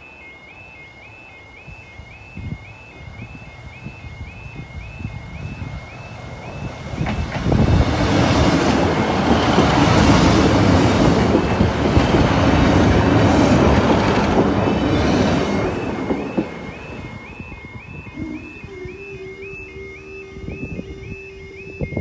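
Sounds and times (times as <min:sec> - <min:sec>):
diesel train engines: 0:00.0 - 0:22.0
warbling crossing alarm: 0:00.0 - 0:22.0
train wheels clattering on rails: 0:05.9 - 0:18.0.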